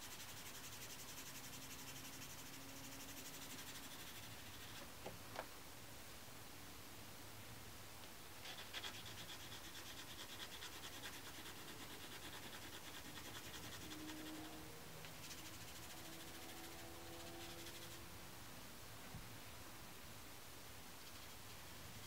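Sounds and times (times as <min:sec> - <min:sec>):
pencil scratching on paper: 0:00.0 - 0:04.9, 0:08.4 - 0:18.0.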